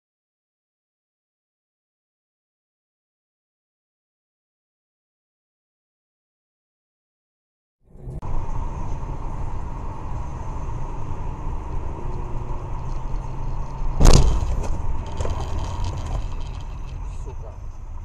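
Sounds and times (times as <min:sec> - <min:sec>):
road and engine noise inside car: 0:07.9 - 0:18.0
loud thump: 0:14.0 - 0:14.8.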